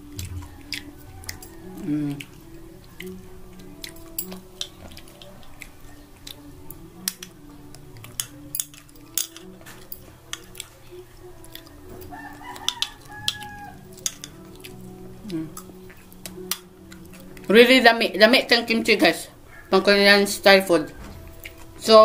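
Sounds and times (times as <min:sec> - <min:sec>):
rooster crowing: 0:00.2 - 0:02.2, 0:11.9 - 0:14.0, 0:19.4 - 0:19.9
chopsticks clicking against bowl: 0:00.2 - 0:10.7, 0:11.4 - 0:17.6.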